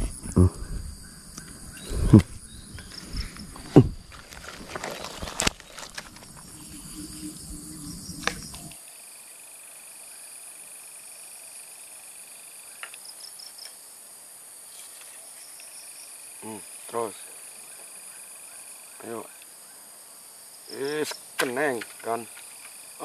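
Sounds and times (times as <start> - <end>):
handling noise rumble: 0.0 - 5.4
insects buzzing: 0.0 - 23.0.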